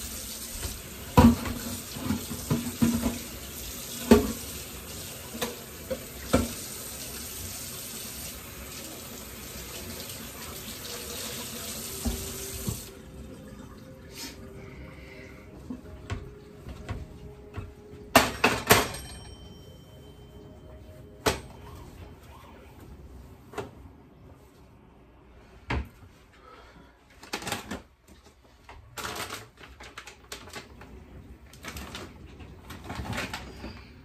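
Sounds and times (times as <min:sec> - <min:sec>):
kitchen items clattering: 0:00.6 - 0:04.6, 0:15.7 - 0:19.5, 0:31.6 - 0:34.0.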